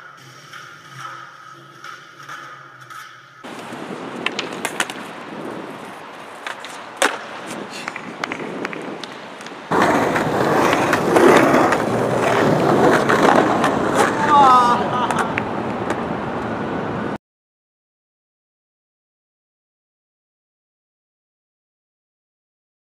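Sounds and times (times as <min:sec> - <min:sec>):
skateboard wheels rolling on concrete: 0:00.0 - 0:17.2
city street noise: 0:03.4 - 0:17.2
skateboard knock: 0:03.5 - 0:14.2.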